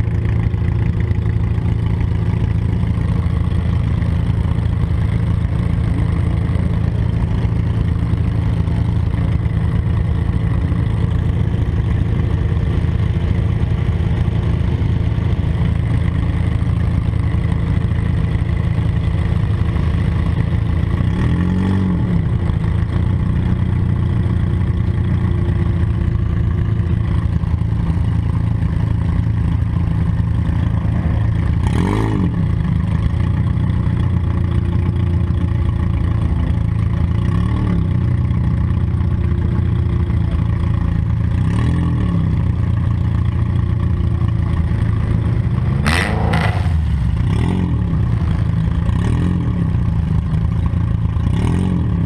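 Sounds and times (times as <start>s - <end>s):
car engine revving: 44.4s - 50.0s.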